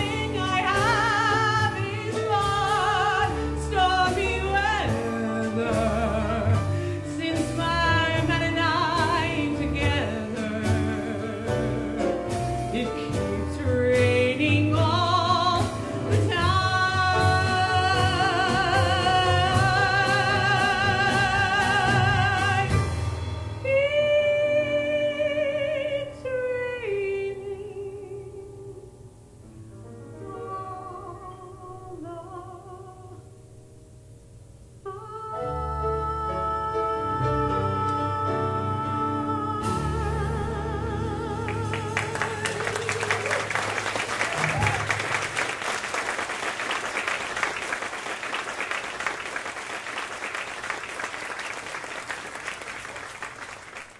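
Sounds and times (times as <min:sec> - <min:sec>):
woman singing with vibrato: 0:00.0 - 0:23.0, 0:23.6 - 0:29.0, 0:30.2 - 0:33.4, 0:34.8 - 0:44.0
audience applauding: 0:41.7 - 0:53.9.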